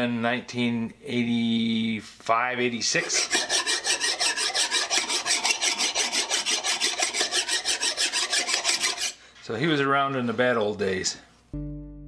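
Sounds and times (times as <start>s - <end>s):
file scraping metal: 2.9s - 9.6s.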